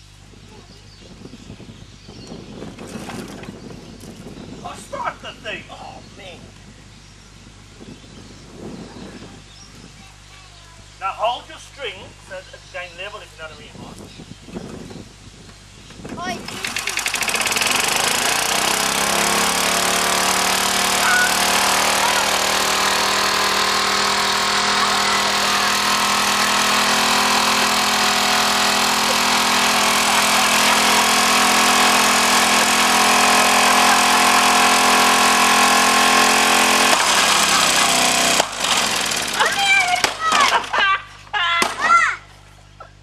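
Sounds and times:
small petrol engine running: 0:16.2 - 0:40.6.

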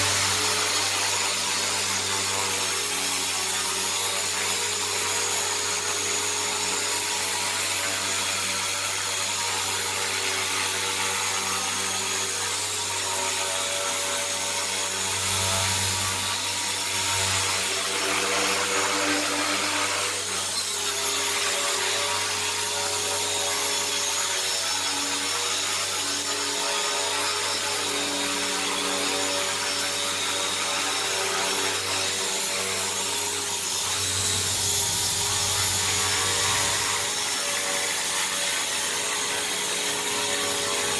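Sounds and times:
rc helicopter motor whining: 0:00.0 - 0:40.9
rotor blades buzzing: 0:10.9 - 0:40.9.

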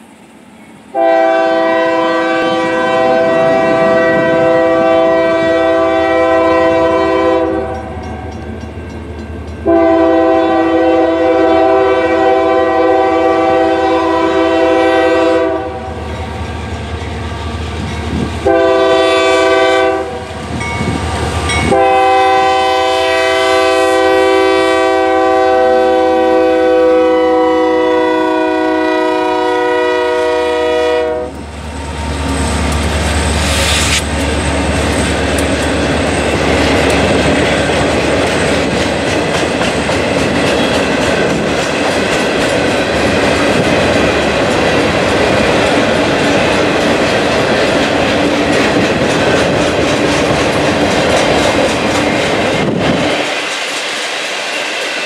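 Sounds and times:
train rumble: 0:00.0 - 0:55.0
locomotive air horn blasts: 0:00.9 - 0:08.0, 0:09.6 - 0:16.0, 0:18.4 - 0:20.4, 0:21.6 - 0:31.4.

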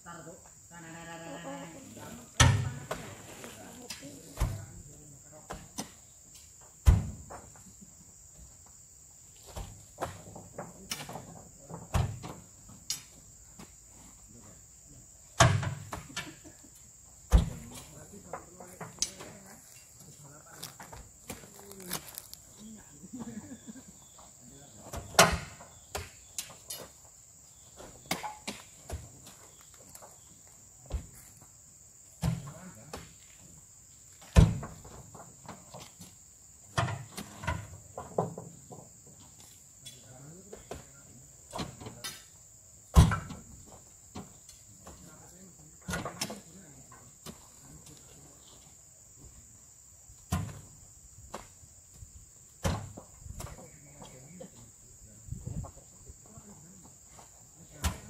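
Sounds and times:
high insect drone: 0:00.0 - 0:58.0
fruit bunches thudding on truck: 0:06.8 - 0:07.6, 0:09.4 - 0:12.5, 0:17.3 - 0:19.5, 0:24.8 - 0:26.6, 0:34.2 - 0:36.0, 0:42.9 - 0:45.1, 0:50.3 - 0:51.6, 0:52.6 - 0:54.2, 0:57.8 - 0:58.0.

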